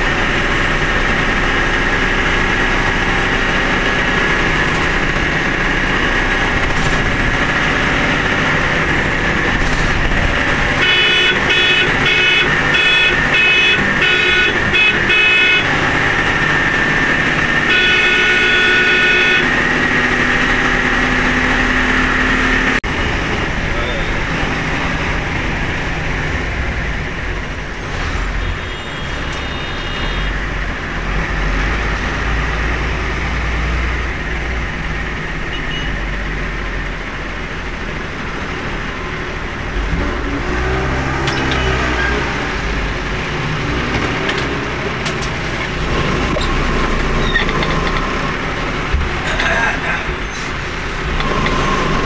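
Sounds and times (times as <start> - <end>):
vehicle engine and road rumble: 0.0 - 52.0.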